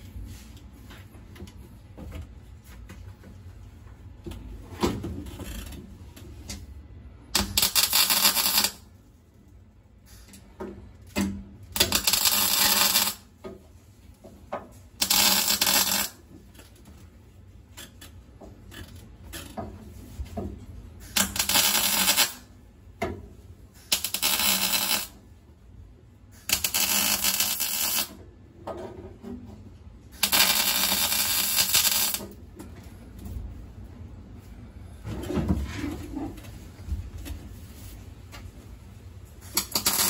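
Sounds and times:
arc welder crackling: 7.3 - 9.0, 11.1 - 13.3, 15.0 - 16.7, 21.0 - 22.6, 23.8 - 25.2, 26.4 - 28.2, 30.2 - 32.4, 39.4 - 40.0.

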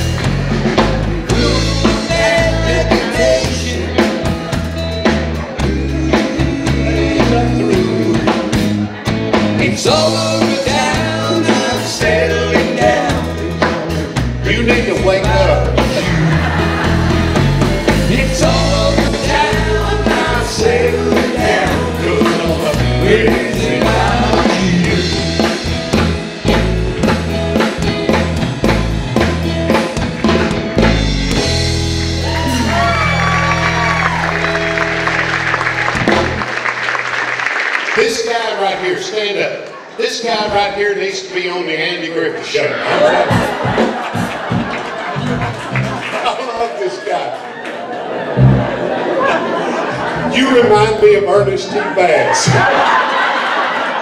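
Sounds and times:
drum kit: 0.0 - 36.9, 43.1 - 46.1, 48.3 - 49.1
electric guitar: 0.0 - 36.9
man singing: 1.3 - 4.5, 5.5 - 8.6, 9.6 - 16.6, 17.9 - 25.6.

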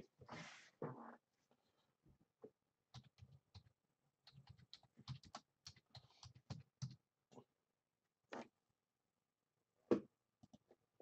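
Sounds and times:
typing on a keyboard: 2.9 - 7.0.

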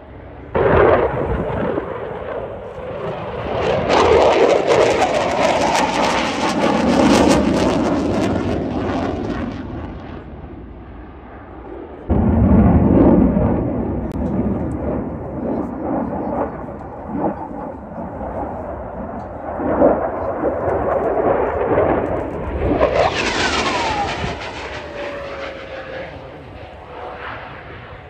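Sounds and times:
fighter jet passing: 0.0 - 28.0
loud low rumble: 12.0 - 18.4, 22.3 - 27.9.

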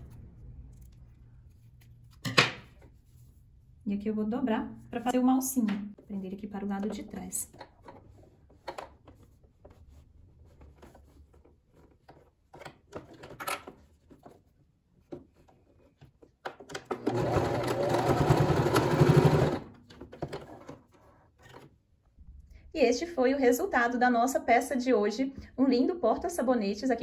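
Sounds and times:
sewing machine stitching: 16.8 - 20.6.

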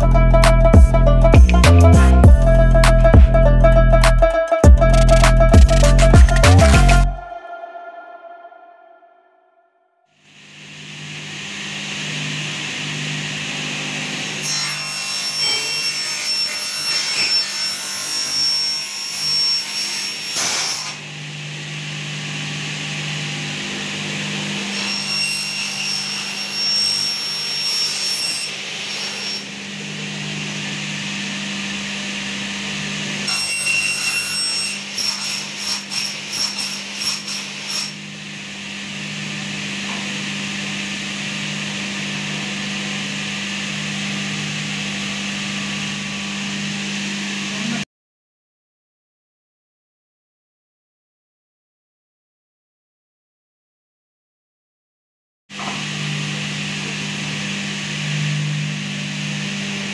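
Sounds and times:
metal scraping with high squeal: 24.7 - 29.5.

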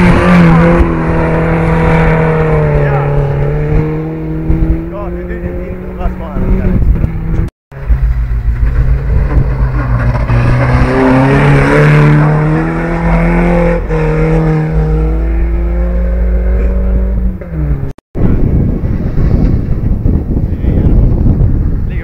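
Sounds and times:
rally car engine revving: 0.0 - 21.3
low rumble: 0.2 - 22.0.

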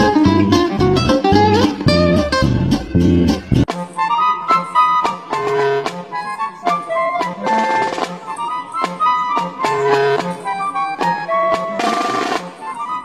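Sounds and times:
melody over steady beat: 0.0 - 3.7.

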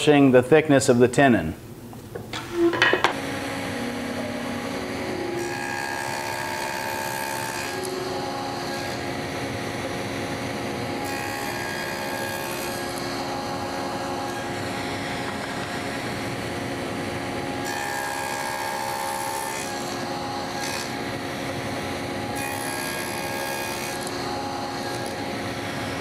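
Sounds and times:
table saw motor hum: 2.4 - 26.0
saw blade cutting wood: 5.1 - 9.2, 10.9 - 16.2, 17.1 - 26.0.

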